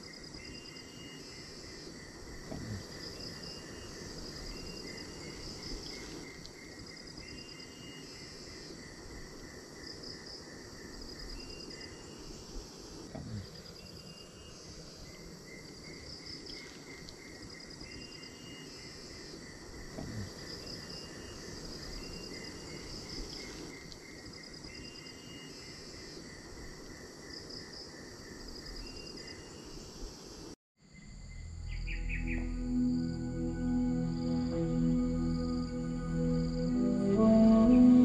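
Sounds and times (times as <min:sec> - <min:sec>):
insects chirping: 0:00.0 - 0:38.0
low steady hiss: 0:00.0 - 0:38.0
high pulsed insect trill: 0:30.8 - 0:38.0
soft music: 0:31.5 - 0:38.0.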